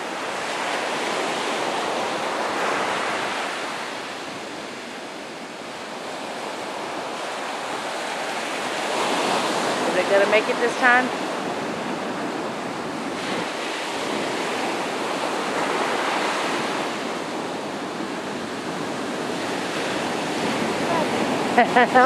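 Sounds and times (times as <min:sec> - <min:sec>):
ocean surf breaking on beach: 0:00.0 - 0:22.0.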